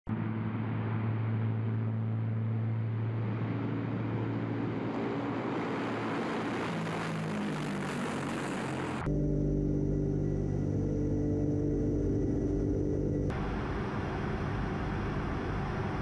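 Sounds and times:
turboprop engines droning: 0:00.1 - 0:16.0.

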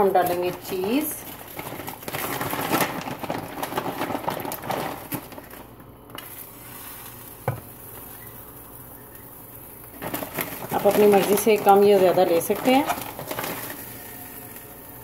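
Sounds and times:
omelette sizzling in a frying pan: 0:05.4 - 0:15.0.

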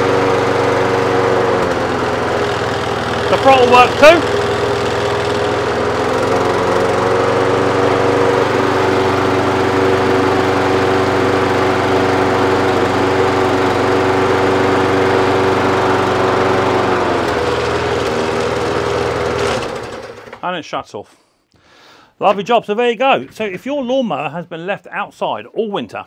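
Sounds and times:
lawn mower engine running: 0:00.0 - 0:20.5.

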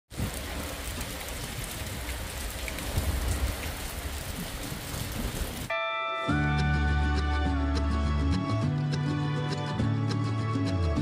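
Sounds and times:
rain on wet pavement: 0:00.1 - 0:05.7
music with held tones and bass: 0:05.7 - 0:11.0.

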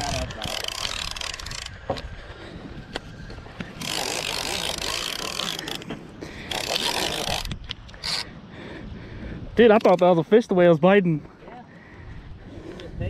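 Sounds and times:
reel clicks: 0:00.0 - 0:02.1, 0:02.9 - 0:08.3
fishing reel gears whirring: 0:00.0 - 0:08.4.

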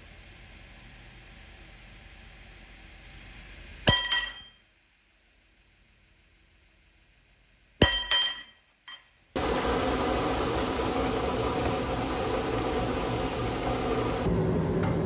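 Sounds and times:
hammer striking steel punch: 0:03.9 - 0:04.6, 0:07.8 - 0:09.1.

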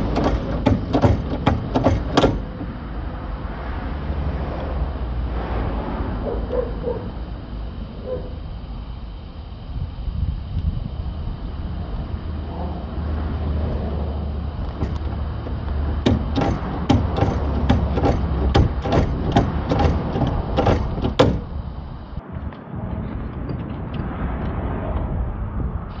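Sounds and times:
wind rumbling on microphone: 0:09.6 - 0:16.6, 0:18.0 - 0:26.0.

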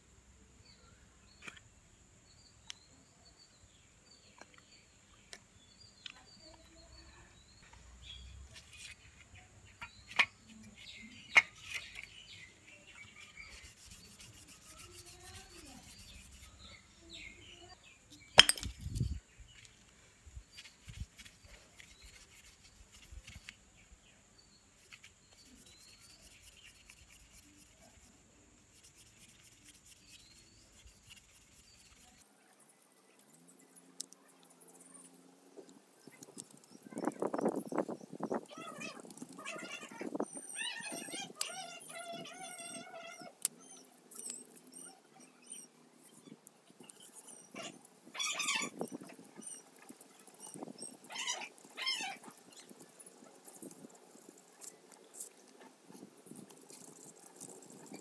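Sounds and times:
small birds chirping: 0:00.6 - 0:58.0
rubbing and scraping strokes: 0:12.9 - 0:16.9, 0:20.5 - 0:23.6, 0:24.8 - 0:32.3
sharp knocks on hard object: 0:18.4 - 0:18.8.

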